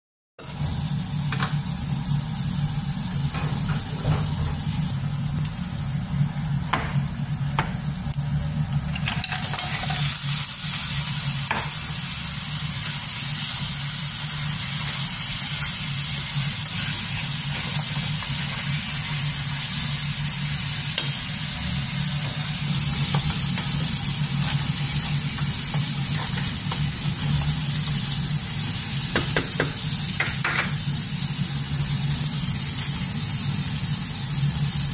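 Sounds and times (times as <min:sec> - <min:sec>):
food sizzling in hot oil: 0:00.4 - 0:34.9
wooden spatula tapping a pan: 0:29.1 - 0:30.8.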